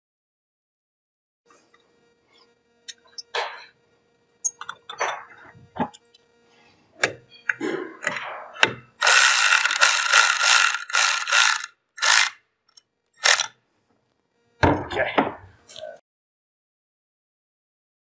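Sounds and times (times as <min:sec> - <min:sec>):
cordless electric ratchet running: 0:09.0 - 0:12.4, 0:13.2 - 0:13.6.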